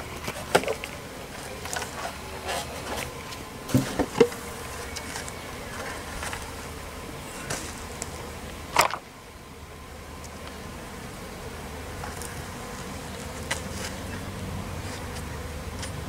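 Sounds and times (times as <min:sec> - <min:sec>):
honeybees humming: 0:00.0 - 0:16.0
wooden knocks on hive: 0:03.7 - 0:04.4.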